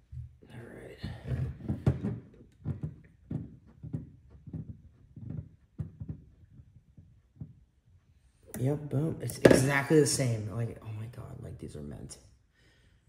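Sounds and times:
faint low knocks and rubs: 1.1s - 8.0s.

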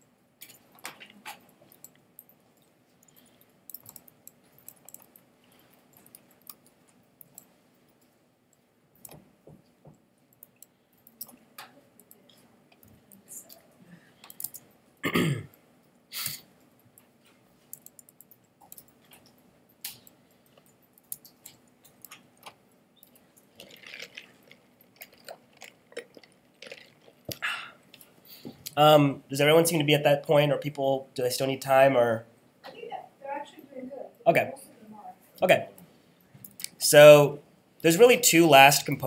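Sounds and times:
person clearing throat: 15.0s - 15.5s.

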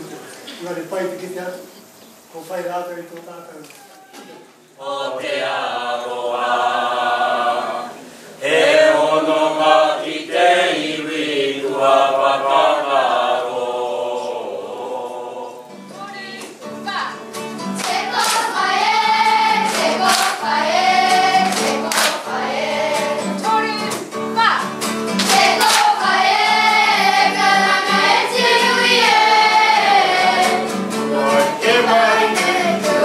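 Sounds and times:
children's group singing: 4.2s - 16.6s, 17.5s - 24.2s, 25.0s - 33.0s
men singing together: 4.8s - 15.7s, 25.3s - 33.0s
strummed guitar: 15.7s - 33.0s.

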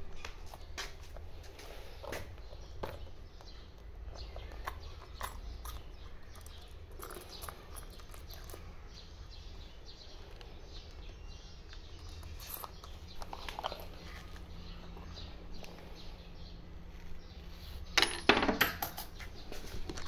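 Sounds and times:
coins clinking: 18.0s - 19.1s.

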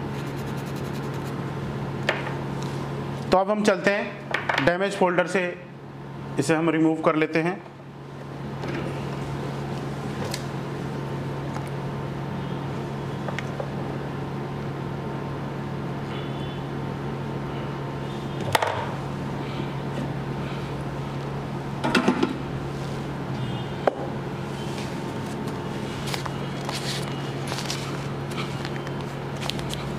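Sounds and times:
hot-air station blowing: 7.9s - 29.9s.

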